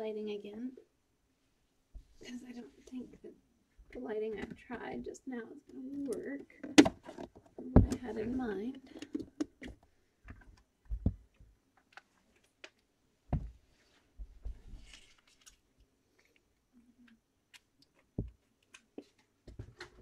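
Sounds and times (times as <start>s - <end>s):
soft low thumps: 10.9s - 11.3s, 13.3s - 13.6s.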